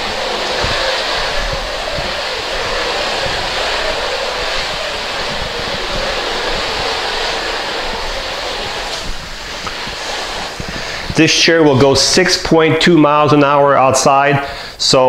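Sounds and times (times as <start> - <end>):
power wheelchair motors running: 0.0 - 11.5.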